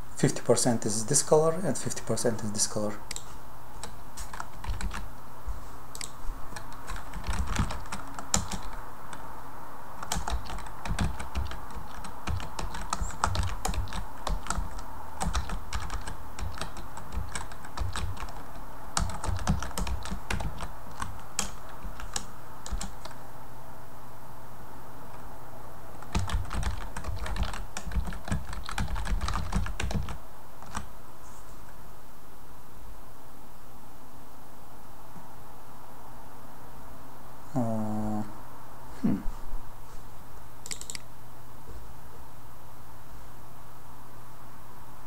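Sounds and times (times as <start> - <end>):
steady background hum: 0.0 - 45.0
computer keyboard typing: 3.1 - 5.1, 6.0 - 9.2, 10.0 - 23.2, 26.0 - 30.9, 40.6 - 41.0.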